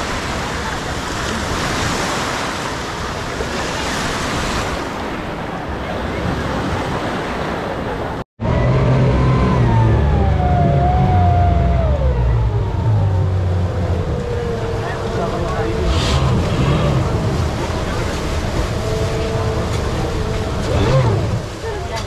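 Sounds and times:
surf washing onto shore: 0.0 - 8.2, 11.5 - 22.0
outboard motors rumbling: 0.0 - 22.0
whine sliding down in pitch: 8.4 - 21.8.

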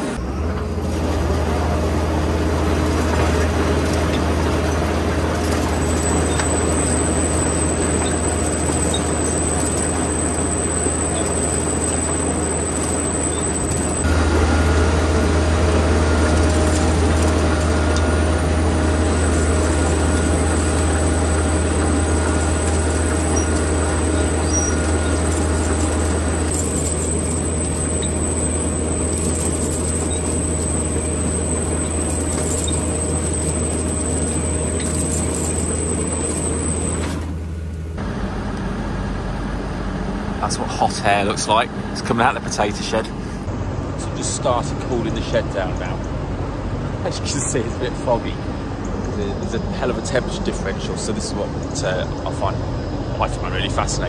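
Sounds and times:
potato harvester engine drone: 0.0 - 54.0
clatter of harvester webs: 15.8 - 37.3.

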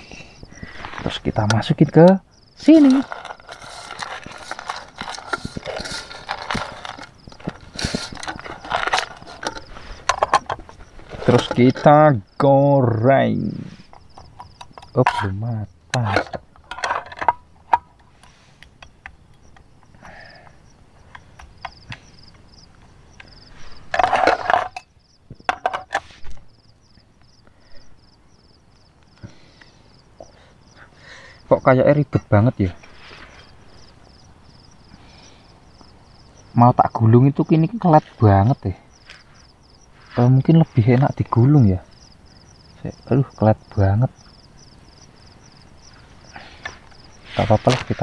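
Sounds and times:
metal spoon scraping metal pot: 2.8 - 11.6.

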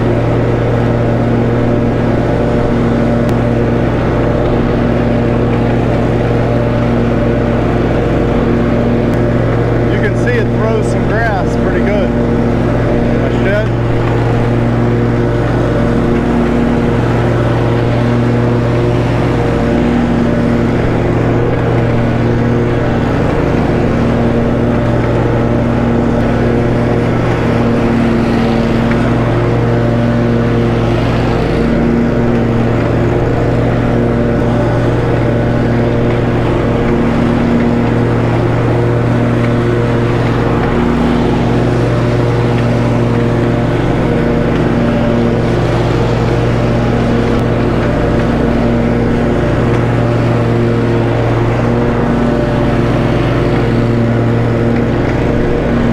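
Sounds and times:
lawn mower cutting grass: 0.0 - 55.9.

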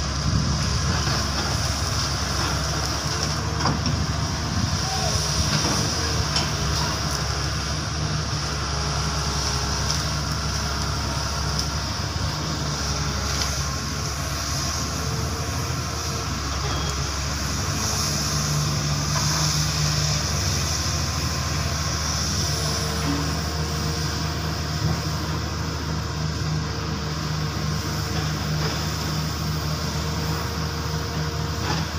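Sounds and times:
excavator diesel engine running: 0.0 - 31.9.

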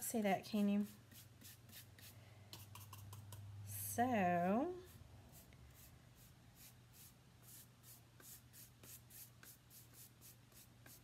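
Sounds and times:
brush strokes on a sign: 4.7 - 11.0.

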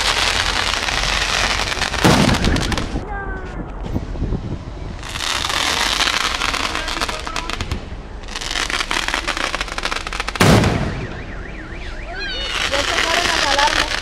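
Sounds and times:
fireworks crackling: 0.0 - 4.2, 4.9 - 14.0
loud firework bang: 2.0 - 3.0, 10.3 - 11.3.

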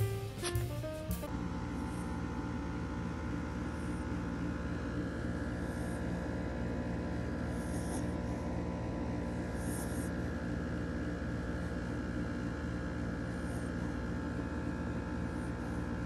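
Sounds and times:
steady droning hum: 1.3 - 16.0
puppy snoring softly: 5.2 - 10.3, 12.8 - 16.0.

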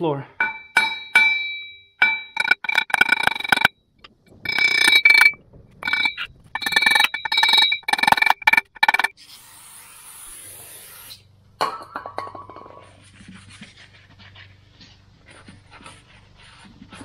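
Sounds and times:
hammer tapping metal pins: 0.4 - 3.7
flywheel ringing: 0.5 - 3.7, 4.4 - 9.1.

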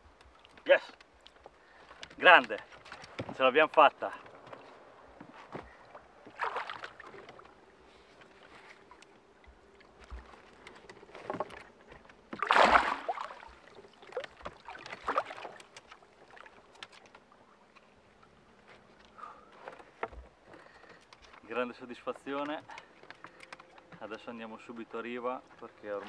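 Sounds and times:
net and boat knocks: 2.0 - 7.5, 10.0 - 16.0, 19.6 - 21.5
fish thrashing and splashing: 5.7 - 7.7, 9.9 - 17.3.

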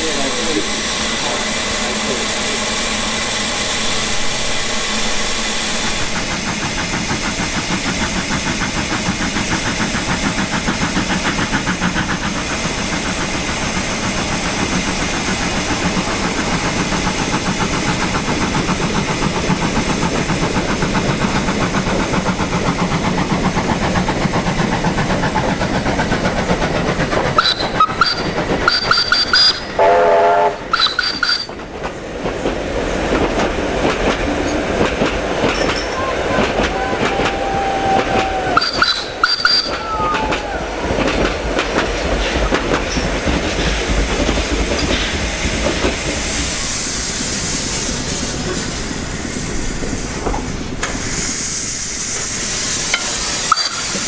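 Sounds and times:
steam locomotive running past: 0.0 - 54.0
steam whistle blasts: 27.4 - 31.5, 36.7 - 40.7.

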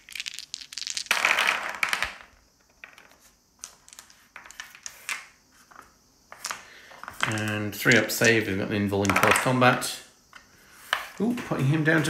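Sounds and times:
dice clicking on a tabletop: 0.0 - 9.6.

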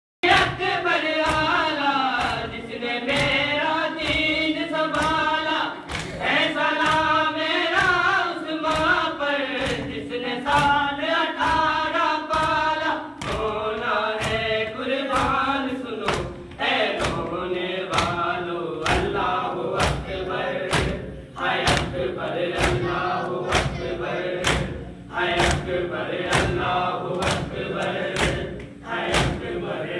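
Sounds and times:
men chanting in unison: 0.2 - 29.9
steady thumping beat: 0.2 - 29.9.

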